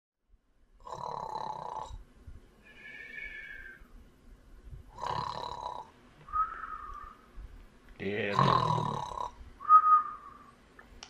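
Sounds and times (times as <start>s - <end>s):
person snoring: 0.8s - 2.0s, 4.9s - 5.9s, 8.2s - 9.4s
thin whistle on out-breath: 2.6s - 3.9s, 6.3s - 7.2s, 9.6s - 10.6s.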